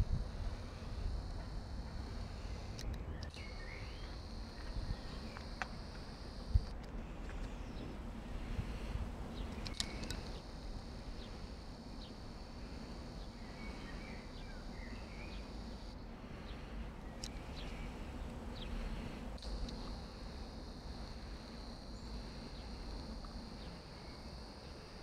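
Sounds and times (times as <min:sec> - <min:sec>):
low background rumble: 0:00.0 - 0:25.0
high-pitched insect chirring: 0:09.5 - 0:16.0, 0:19.4 - 0:25.0.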